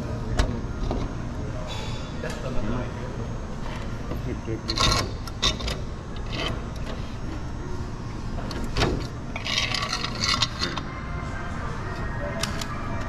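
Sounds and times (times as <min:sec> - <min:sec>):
steady background hum: 0:00.0 - 0:13.0
metal bracket scraping: 0:04.7 - 0:07.4, 0:08.5 - 0:10.9.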